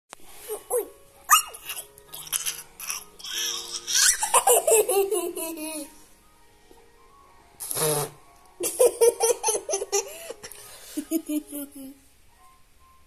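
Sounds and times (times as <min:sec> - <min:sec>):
girl laughing and giggling: 0:04.0 - 0:05.9, 0:08.6 - 0:12.0.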